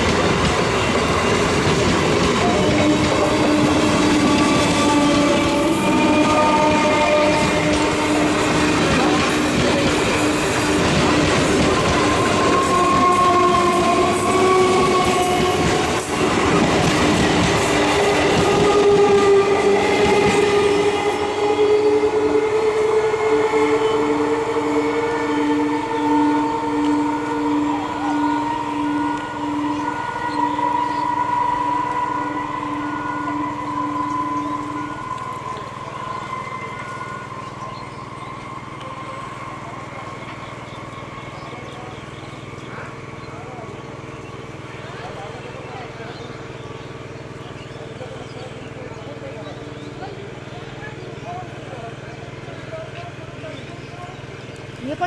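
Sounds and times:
train wheels clattering on rails: 0.0s - 21.6s
electric train motor hum and whine: 0.0s - 55.0s.

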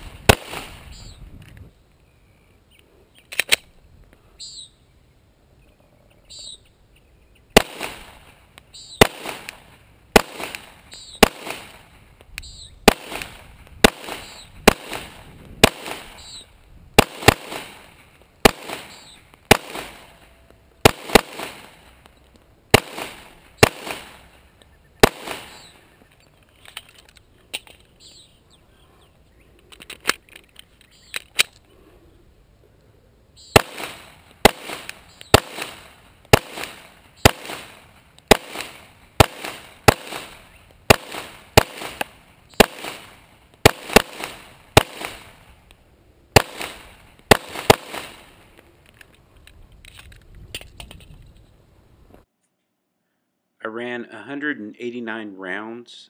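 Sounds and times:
pistol shots: 0.2s - 1.0s, 7.6s - 11.9s, 12.8s - 16.4s, 17.0s - 22.0s, 22.7s - 24.4s, 25.0s - 25.8s, 33.5s - 45.4s, 46.4s - 48.4s.

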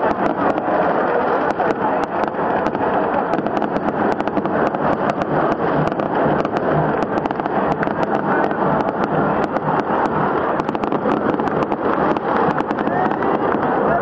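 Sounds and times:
firecrackers popping: 0.0s - 14.0s
stadium crowd roaring: 0.0s - 14.0s.

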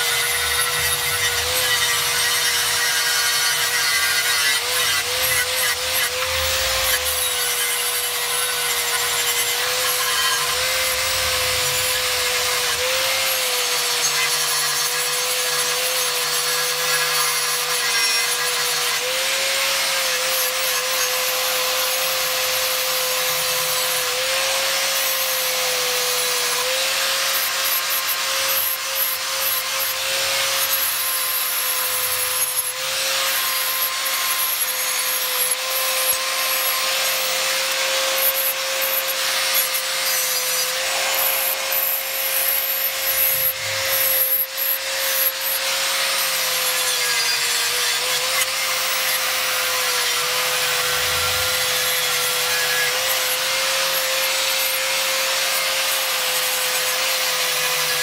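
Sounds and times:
disc grinding on metal: 0.0s - 14.3s, 35.7s - 47.8s
angle grinder motor whine: 0.0s - 55.5s.

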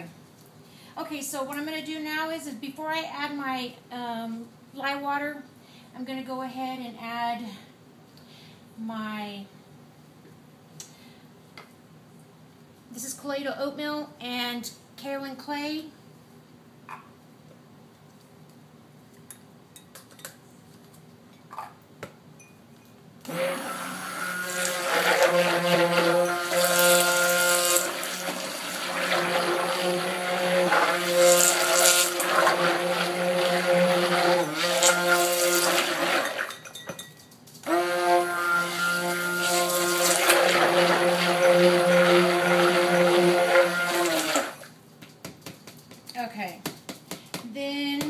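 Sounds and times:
stick blender running: 23.3s - 36.5s, 37.6s - 44.7s.

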